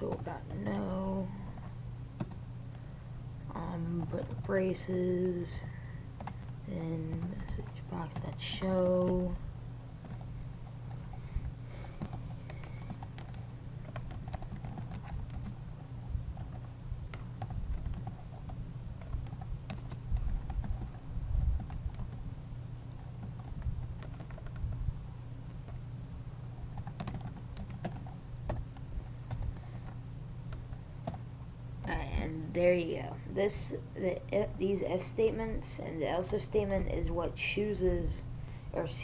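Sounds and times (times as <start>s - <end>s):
steady low hum: 0.0s - 39.0s
typing on computer keyboard: 12.0s - 15.6s, 16.4s - 21.0s, 23.0s - 24.7s, 26.6s - 29.5s.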